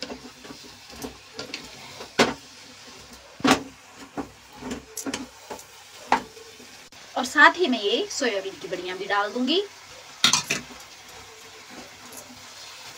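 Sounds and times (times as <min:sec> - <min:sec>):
wooden spatula scraping a pan: 0:00.0 - 0:06.8.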